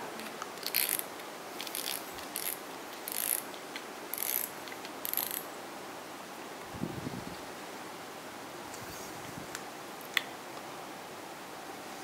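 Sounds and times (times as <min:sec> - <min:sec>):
fishing reel clicking: 0:00.6 - 0:03.4, 0:04.1 - 0:05.4.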